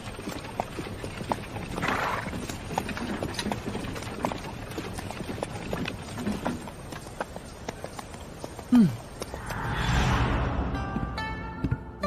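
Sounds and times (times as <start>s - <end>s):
horse hooves clip-clopping: 0.0s - 9.4s
short breathy rush of noise: 9.3s - 10.8s.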